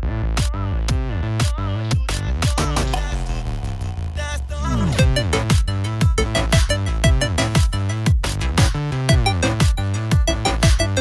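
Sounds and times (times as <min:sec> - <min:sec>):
synth chords: 0:02.8 - 0:11.0.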